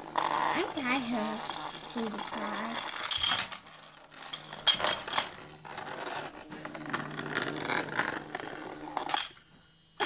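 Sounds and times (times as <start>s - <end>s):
plastic toy rattling: 0.2s - 9.3s.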